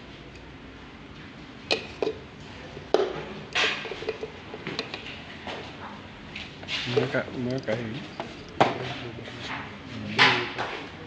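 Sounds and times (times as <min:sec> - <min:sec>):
scrape: 0:06.4 - 0:07.2, 0:07.9 - 0:10.8
handling clicks and knocks: 0:07.0 - 0:08.8.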